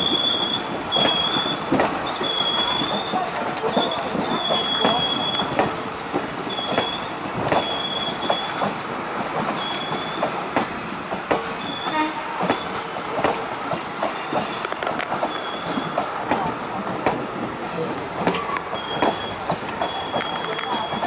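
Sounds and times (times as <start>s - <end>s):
wheel squeals: 0.0s - 5.6s, 6.5s - 8.7s, 9.6s - 10.3s, 11.6s - 13.0s, 15.3s - 16.0s, 18.4s - 21.0s
train wheels clattering over joints: 0.0s - 21.0s.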